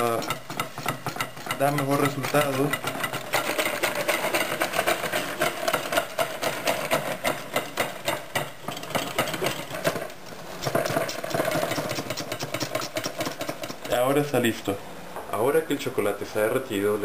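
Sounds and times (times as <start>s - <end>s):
whisk clicking against glass bowl: 0.0s - 9.7s, 11.6s - 14.1s.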